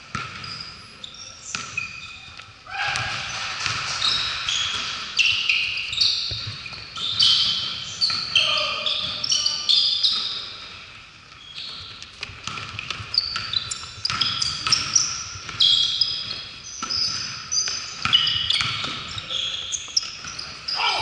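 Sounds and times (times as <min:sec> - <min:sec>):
basketball bouncing on floor: 0:00.0 - 0:00.6, 0:02.9 - 0:09.4, 0:11.6 - 0:21.0
shoes squeaking on hardwood court: 0:00.0 - 0:21.0.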